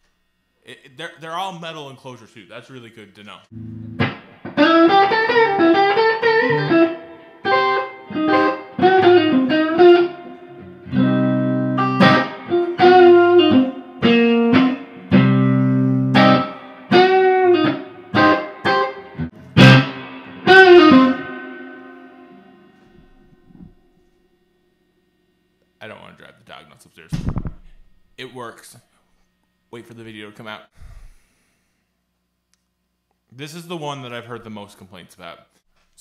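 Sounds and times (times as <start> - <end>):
electric guitar with string bends: 3.5 - 24.3.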